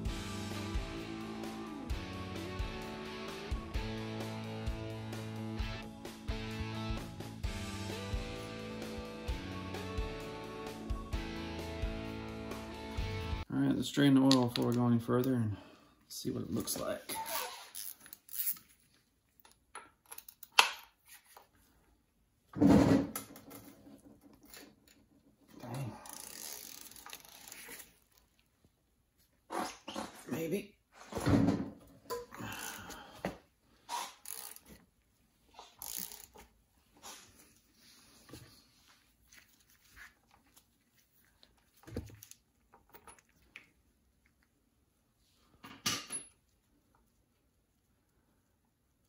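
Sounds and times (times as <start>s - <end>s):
ratchet wrench clicking: 17.8s - 18.6s, 26.0s - 27.6s, 34.2s - 34.7s, 35.8s - 36.4s.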